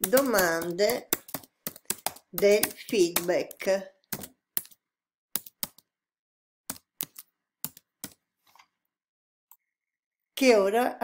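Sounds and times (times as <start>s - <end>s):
computer keyboard keystrokes: 0.0s - 4.8s, 5.4s - 5.9s.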